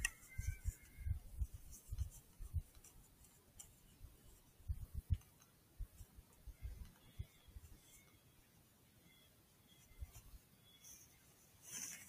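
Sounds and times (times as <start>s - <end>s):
faint high-pitched call: 0.0s - 1.4s
scratching on microphone: 0.0s - 5.2s.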